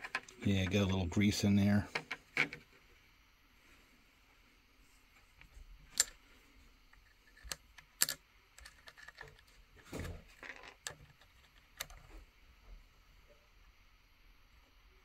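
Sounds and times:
small metal parts clicking: 7.0 - 9.5.

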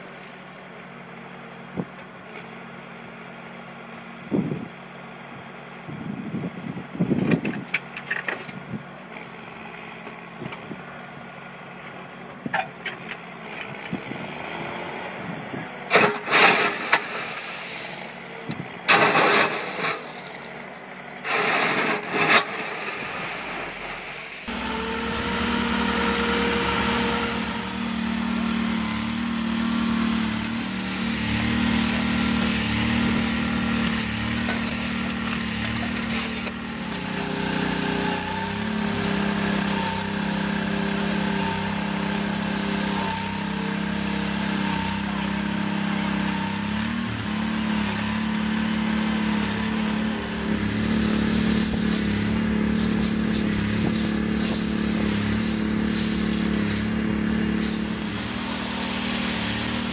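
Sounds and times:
excavator engine running: 7.1 - 59.9
small machine engine running: 24.5 - 59.9.

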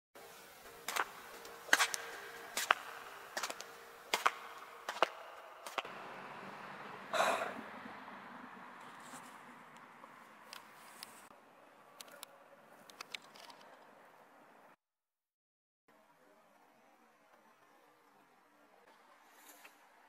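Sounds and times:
footsteps on sandy ground: 0.7 - 5.9.

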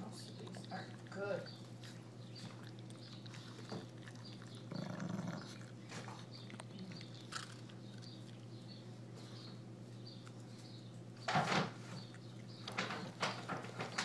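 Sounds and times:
dog crunching carrot: 0.0 - 14.0
dog grunt: 4.4 - 5.8.

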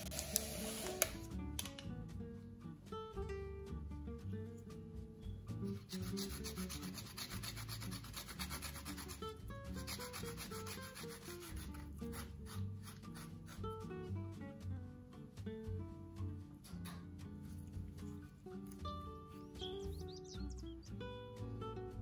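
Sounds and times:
soft background music: 0.0 - 22.0
peel rasping on a grater: 5.7 - 13.6.

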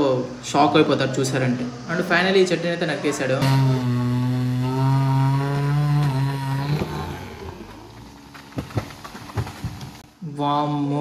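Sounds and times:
chainsaw running: 3.4 - 9.9
tree cracking and thudding down: 7.8 - 10.0.

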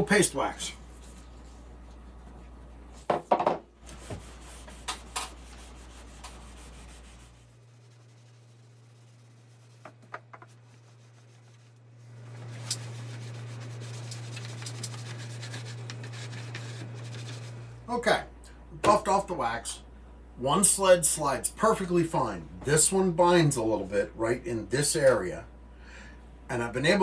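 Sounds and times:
cloth rubbing wax onto wood: 3.8 - 17.7.

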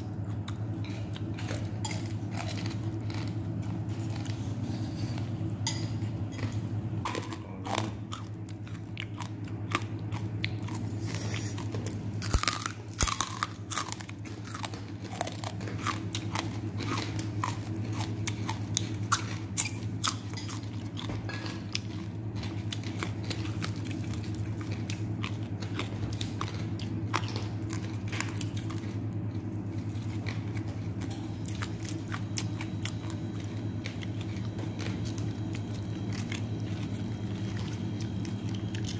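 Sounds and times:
chewing crunchy food: 0.0 - 38.9
steady low hum: 0.0 - 38.9.

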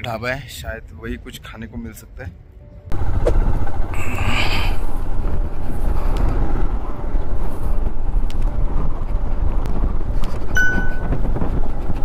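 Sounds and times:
motorcycle engine and road rumble: 2.8 - 12.0
wind buffeting microphone: 2.9 - 12.0.

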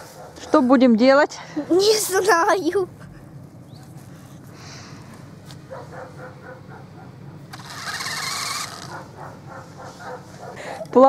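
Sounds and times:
toy truck electric motor whirring: 7.5 - 9.2.

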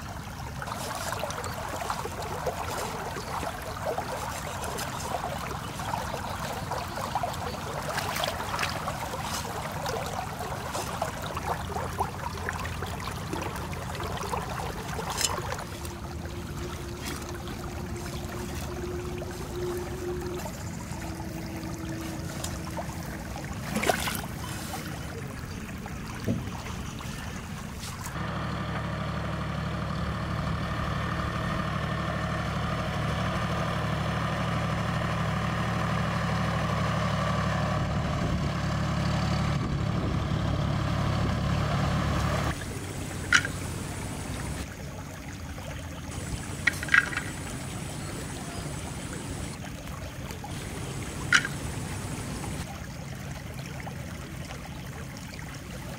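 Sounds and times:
tractor engine running: 25.9 - 44.7, 46.1 - 49.6, 50.5 - 52.6.

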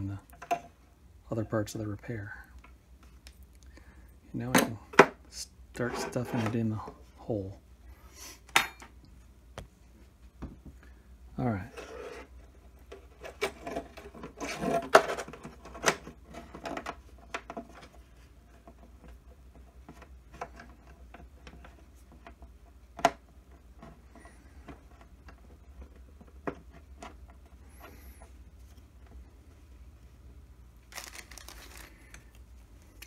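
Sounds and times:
cable handling clicks and rubbing: 30.8 - 33.0.

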